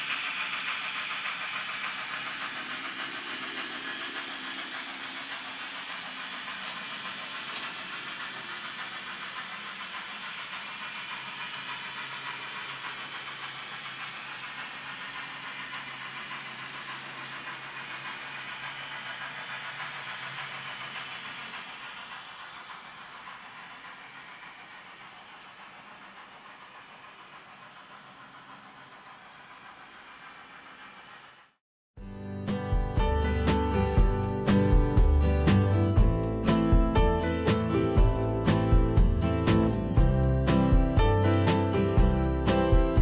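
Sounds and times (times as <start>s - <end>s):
model train rolling: 0.0s - 31.6s, 32.4s - 43.0s
faint clicks: 22.4s - 30.4s.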